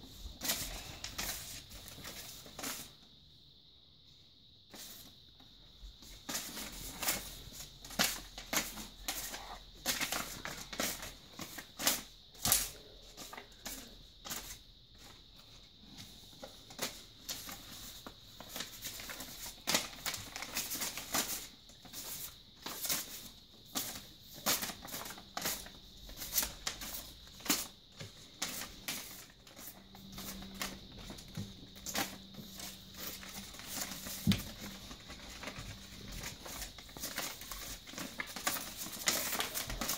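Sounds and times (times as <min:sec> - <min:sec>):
paper and plastic bag rustling: 0:23.8 - 0:39.9.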